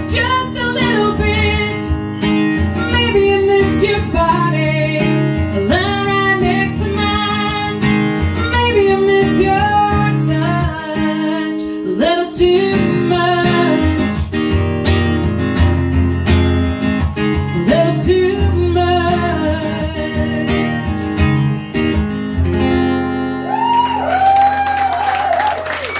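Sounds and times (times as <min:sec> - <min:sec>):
woman singing: 0:00.0 - 0:14.3, 0:17.6 - 0:21.0
strummed acoustic guitar: 0:00.0 - 0:23.4
audience cheering: 0:23.4 - 0:25.9.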